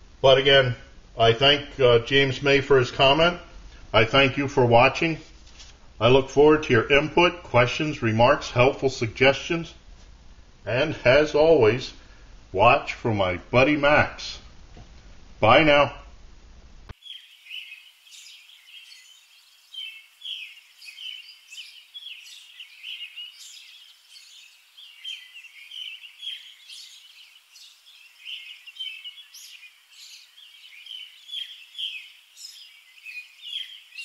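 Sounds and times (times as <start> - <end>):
small birds chirping: 16.9 - 34.0.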